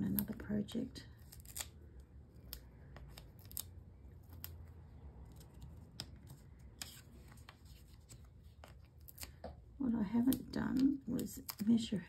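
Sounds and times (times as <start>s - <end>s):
paper handling clicks and taps: 5.3s - 11.8s.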